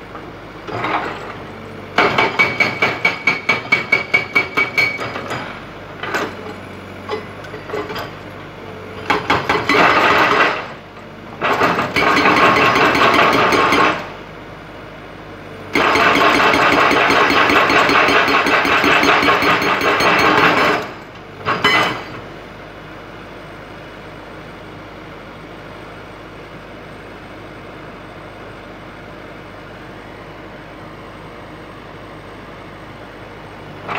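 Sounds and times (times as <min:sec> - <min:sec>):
excavator engine running: 0:00.0 - 0:33.9
hydraulic rock breaker hammering: 0:00.7 - 0:08.2, 0:09.0 - 0:10.8, 0:11.4 - 0:14.2, 0:15.7 - 0:22.3.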